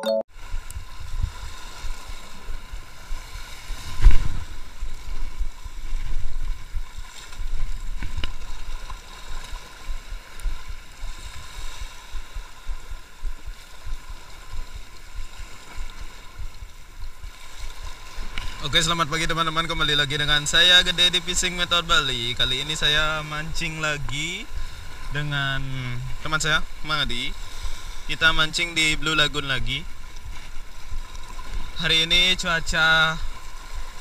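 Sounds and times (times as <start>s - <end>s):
wind buffeting microphone: 0.4s - 19.1s
sea water washing against rocks: 0.4s - 34.0s.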